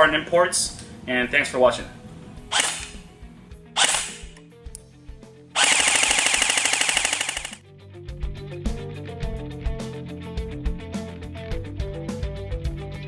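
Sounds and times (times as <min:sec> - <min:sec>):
airsoft rifle firing: 0:02.5 - 0:03.0, 0:03.8 - 0:04.4, 0:05.6 - 0:07.6.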